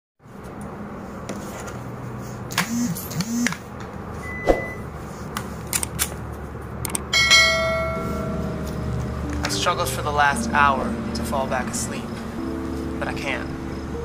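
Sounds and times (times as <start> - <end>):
bright ringing bell chime: 7.2 - 8.7.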